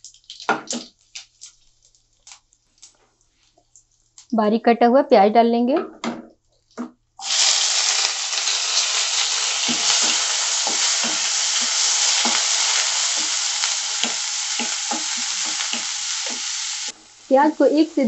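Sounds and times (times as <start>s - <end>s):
onion sizzling in oil: 7.2s - 18.0s
spatula knocking pan: 9.6s - 17.0s.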